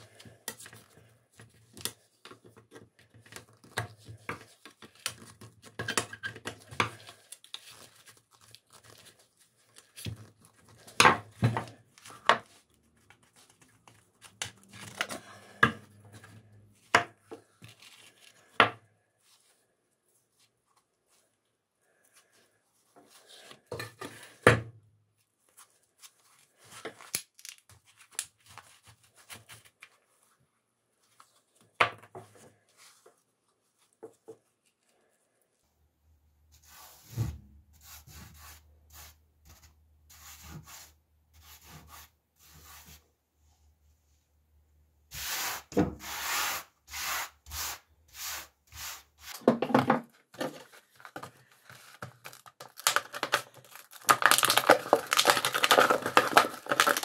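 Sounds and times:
gloved hand brushing tabletop: 36.5 - 37.1, 37.8 - 43.0, 45.1 - 49.4.

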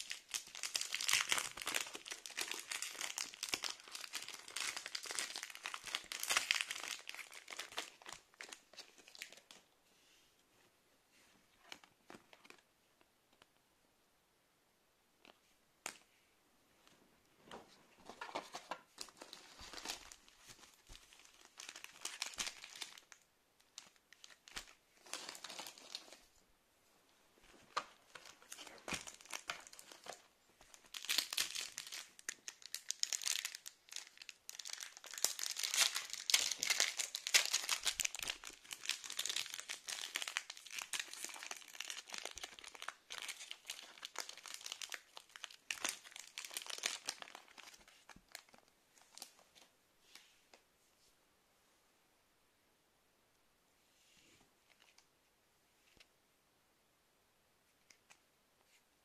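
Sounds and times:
foil wrappers crinkling and tearing: 0.0 - 9.5, 19.0 - 23.1, 28.2 - 48.6.

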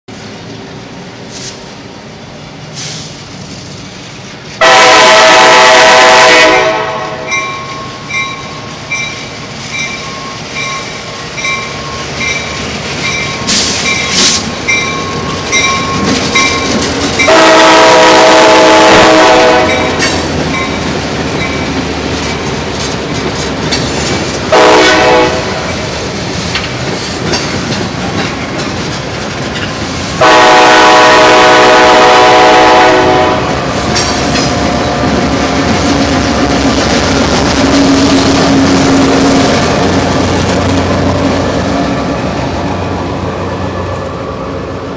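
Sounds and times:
locomotive horn blasts: 4.6 - 7.4, 17.2 - 20.1, 24.5 - 25.7, 30.2 - 33.7
train wheels clattering over rails: 7.3 - 44.6.

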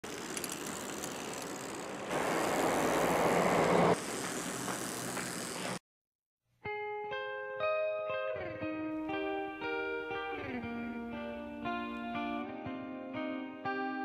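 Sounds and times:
street noise rumbling hiss: 0.1 - 5.8.

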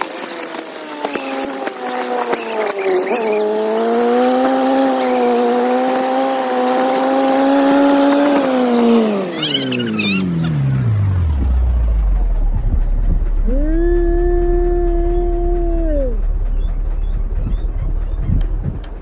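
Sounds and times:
vehicle engine revving: 0.0 - 19.0
high squeals: 1.2 - 3.6.

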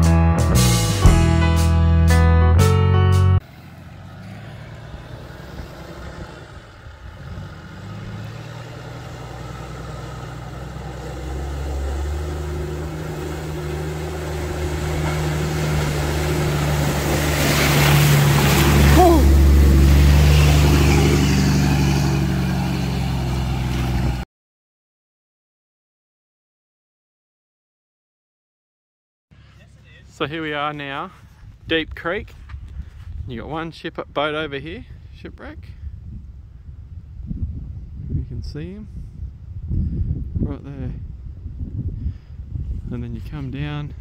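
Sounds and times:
vehicle engine humming: 0.6 - 24.2.

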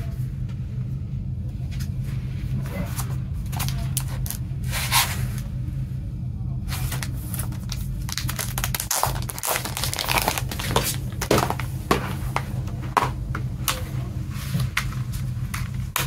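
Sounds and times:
plastic sleeve crinkling: 6.8 - 12.2.

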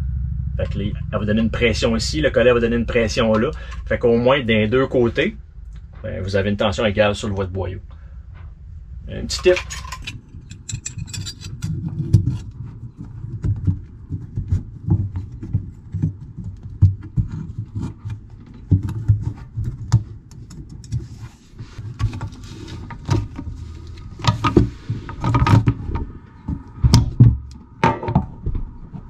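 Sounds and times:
hands working hose clamps: 9.4 - 13.6
dull thuds: 23.0 - 29.0.

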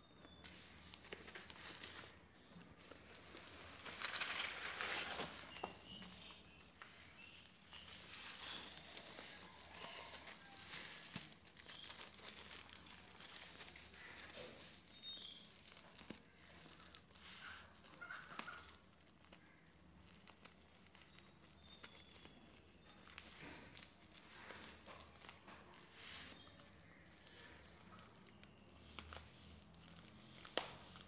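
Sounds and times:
bubble wrap crinkling: 0.2 - 31.0.

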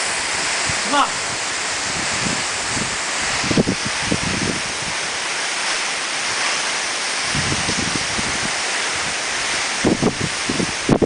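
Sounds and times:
wind buffeting microphone: 0.0 - 11.0
wind rushing: 0.0 - 11.0.

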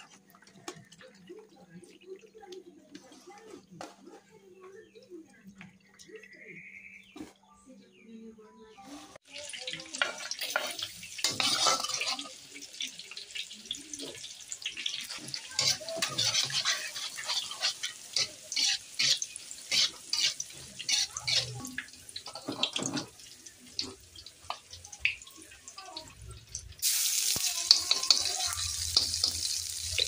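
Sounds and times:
kitchen utensils clinking and scraping: 8.8 - 24.8, 26.5 - 30.0.

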